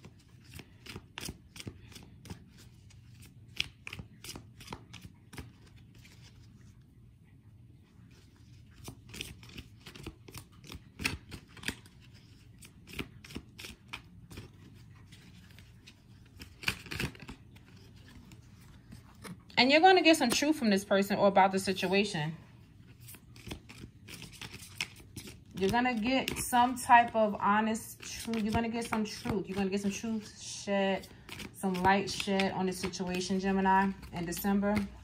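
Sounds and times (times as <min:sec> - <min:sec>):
cards being shuffled: 0:00.0 - 0:06.9, 0:08.0 - 0:19.6, 0:22.6 - 0:30.4, 0:31.0 - 0:35.0.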